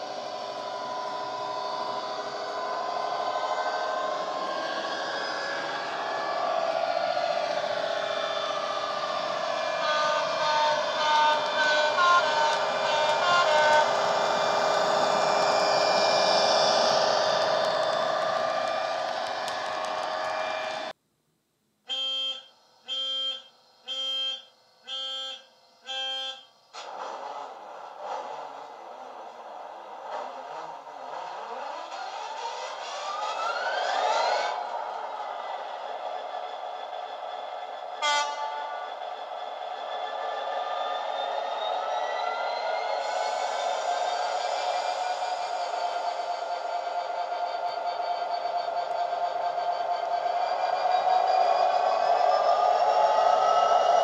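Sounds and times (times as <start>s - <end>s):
model locomotive diesel sound: 0.0s - 21.0s, 21.9s - 54.0s
electronic warning beeps: 21.9s - 26.5s.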